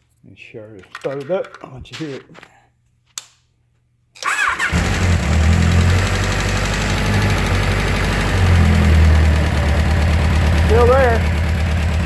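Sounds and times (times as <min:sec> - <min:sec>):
motorcycle engine starting and idling: 0:04.2 - 0:12.0
mechanical engine noise: 0:04.6 - 0:12.0.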